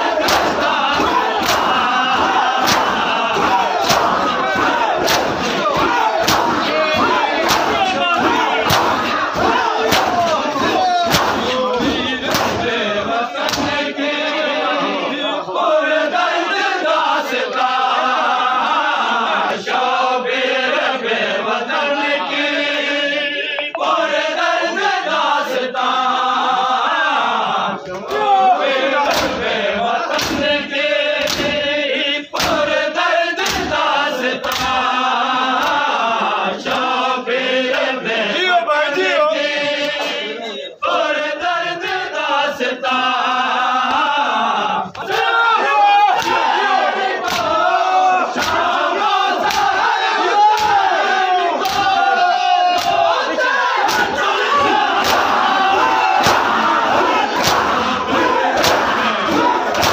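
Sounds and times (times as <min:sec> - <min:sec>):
crowd of men chanting: 0:00.0 - 0:59.9
hands slapping chests: 0:00.2 - 0:12.8, 0:13.4 - 0:13.8, 0:29.0 - 0:29.4, 0:30.1 - 0:30.6, 0:31.2 - 0:31.6, 0:32.4 - 0:32.7, 0:33.4 - 0:33.8, 0:34.4 - 0:34.8, 0:35.6 - 0:35.9, 0:46.1 - 0:46.5, 0:47.2 - 0:47.6, 0:48.3 - 0:48.8, 0:49.4 - 0:49.8, 0:50.5 - 0:50.9, 0:51.6 - 0:52.1, 0:52.7 - 0:53.1, 0:53.8 - 0:59.9.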